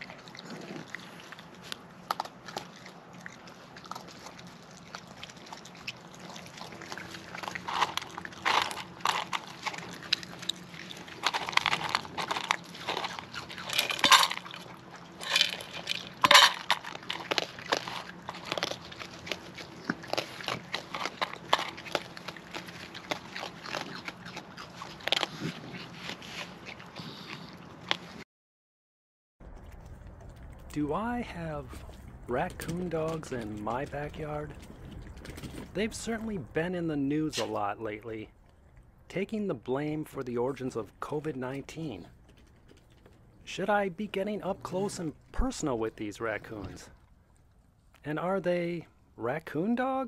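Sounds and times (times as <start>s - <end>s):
raccoons chewing and crunching: 0.0s - 28.2s, 29.4s - 50.0s.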